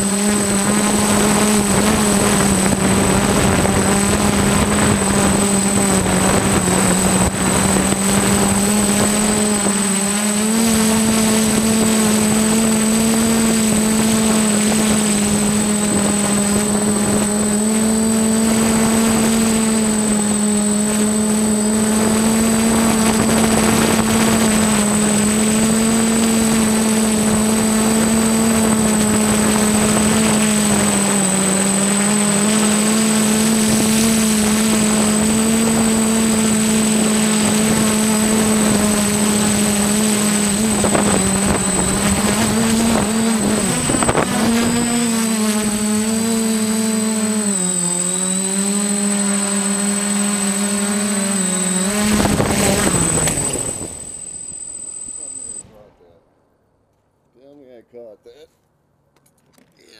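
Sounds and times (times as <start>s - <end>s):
drone propeller hum: 0.0s - 55.7s
wind buffeting: 37.0s - 54.8s.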